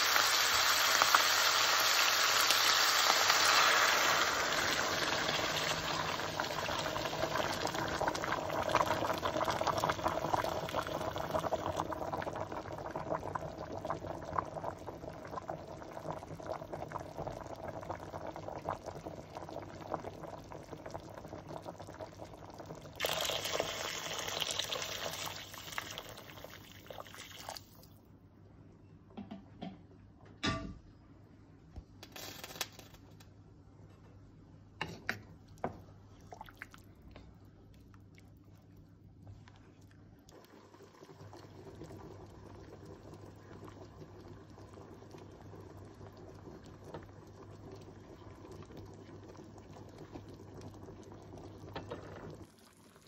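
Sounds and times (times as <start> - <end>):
pot of water bubbling: 0.0 - 27.9, 35.4 - 53.0.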